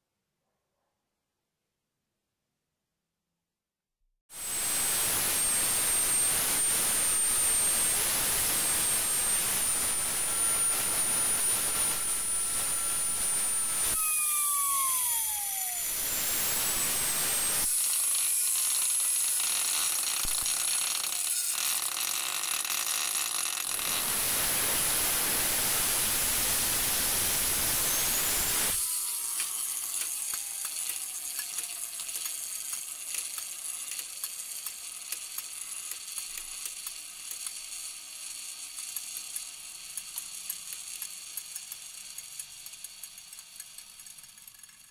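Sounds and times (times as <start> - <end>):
ball bearing high-pitched whine: 4.4 - 33.0
loud hiss: 23.7 - 28.8.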